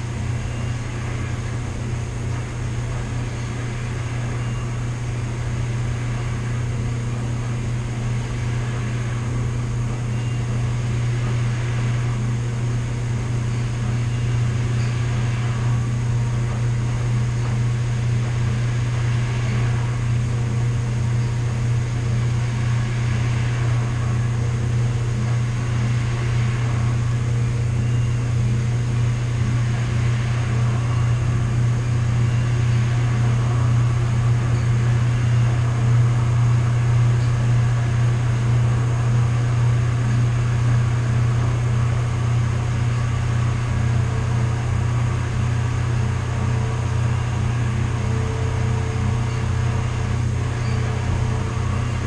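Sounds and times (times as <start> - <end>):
household machines humming: 0.0 - 52.0.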